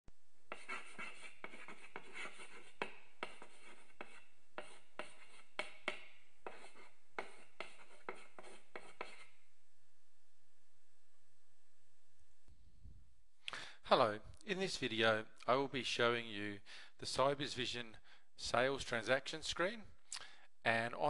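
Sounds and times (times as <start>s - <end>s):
chalk scratching on blackboard: 0.5s - 9.4s.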